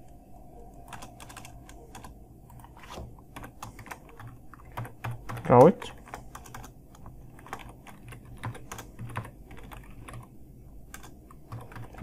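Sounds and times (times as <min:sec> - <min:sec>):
computer keyboard key clicks: 0:03.3 - 0:06.7, 0:07.4 - 0:10.3, 0:10.9 - 0:12.0.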